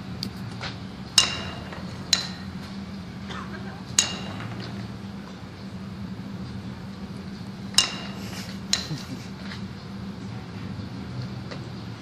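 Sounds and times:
sharp metallic clinks: 4.0s - 4.8s, 7.7s - 9.3s.

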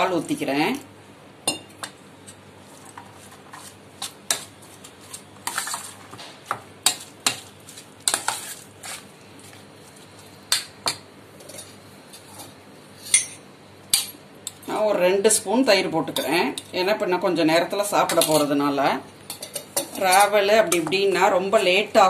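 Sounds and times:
spoon stirring and scraping rice: 1.8s - 10.4s.

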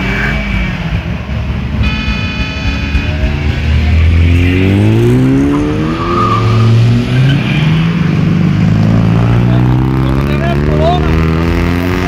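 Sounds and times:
car engine revving: 0.0s - 12.0s
steady high tone: 1.8s - 6.1s.

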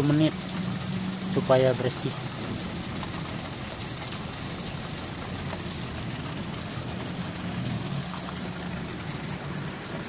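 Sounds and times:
water rushing through pipes: 0.0s - 10.0s.

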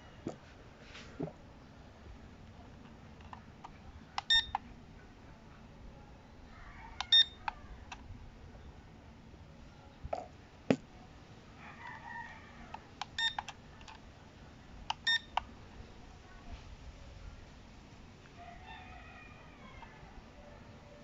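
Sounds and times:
short electronic beeps: 4.2s - 4.6s, 7.1s - 7.4s, 13.2s - 13.4s, 15.0s - 15.4s
rooster crowing: 6.5s - 8.0s, 11.6s - 12.8s, 18.4s - 20.2s.

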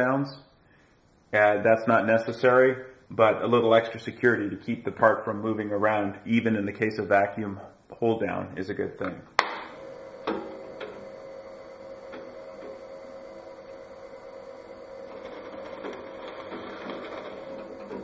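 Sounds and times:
drill press drilling plywood: 9.5s - 18.0s.

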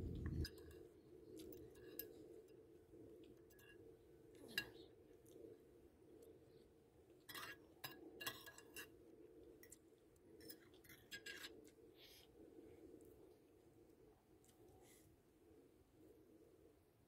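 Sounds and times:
cutlery scraping a ceramic bowl: 7.3s - 9.0s, 10.4s - 11.6s.

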